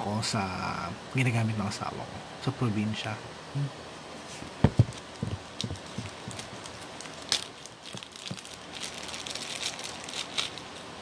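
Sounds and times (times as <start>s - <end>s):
dull thumps: 4.6s - 6.6s
plastic bag crinkling: 4.9s - 10.9s.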